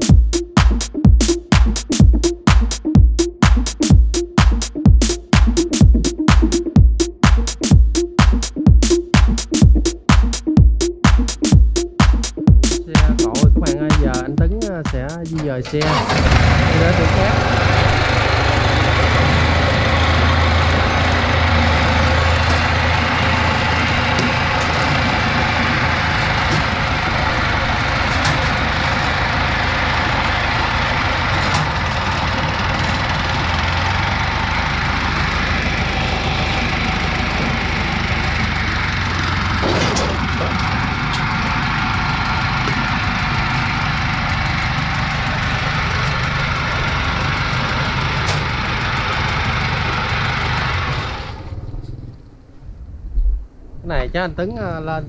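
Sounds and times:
tracked carrier engine running: 0.0s - 10.2s, 10.9s - 52.6s
sharp metallic clanks: 39.2s - 41.6s.

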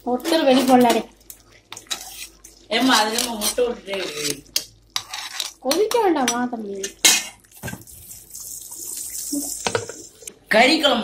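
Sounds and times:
ladle scraping metal pot: 1.7s - 6.0s.

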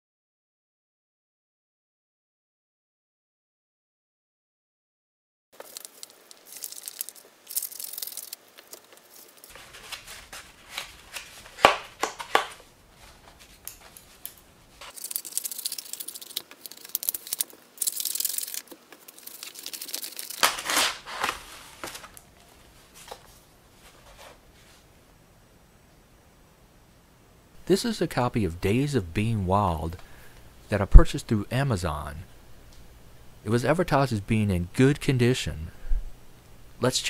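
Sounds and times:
scissors cutting paper: 5.6s - 12.5s, 13.7s - 22.1s
paper tearing and crinkling: 5.6s - 22.2s.

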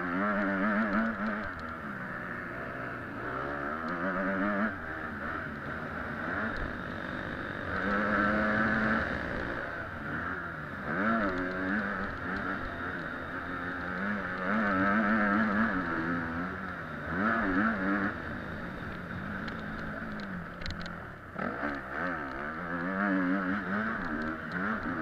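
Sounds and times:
motocross bike engine revving: 0.0s - 25.0s.

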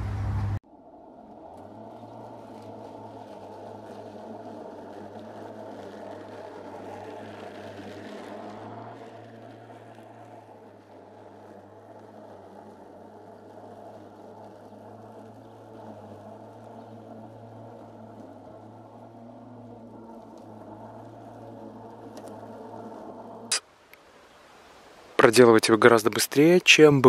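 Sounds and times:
electric lawn mower running: 0.1s - 23.5s.

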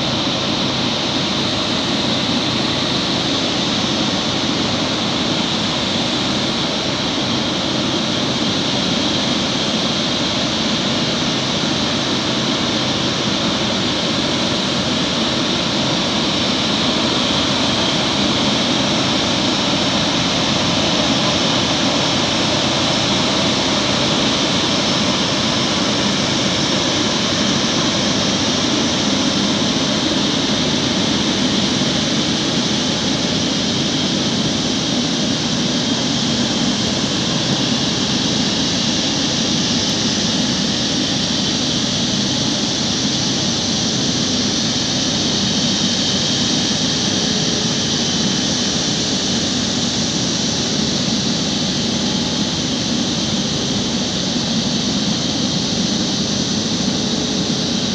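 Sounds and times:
jet engines at taxi power: 0.0s - 57.9s.

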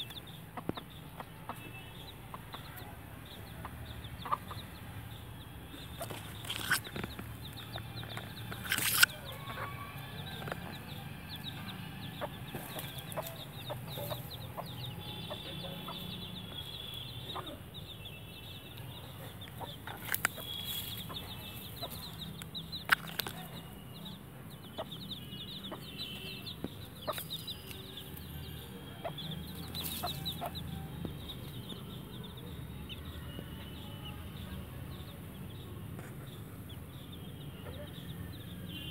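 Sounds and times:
chicks peeping: 0.0s - 38.5s
hen clucking: 3.6s - 4.8s, 5.8s - 16.2s, 29.0s - 30.9s.

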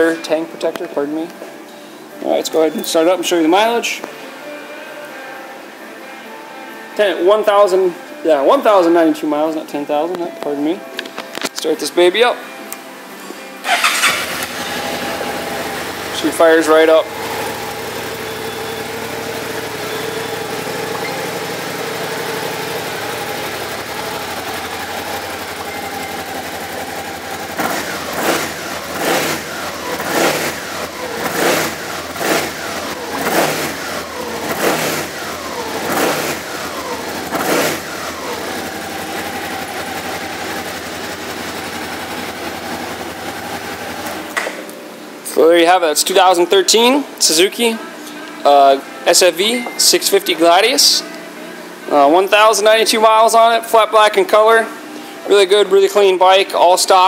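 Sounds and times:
engine revving: 13.6s - 44.4s
motorcycle engine idling: 13.7s - 44.4s.

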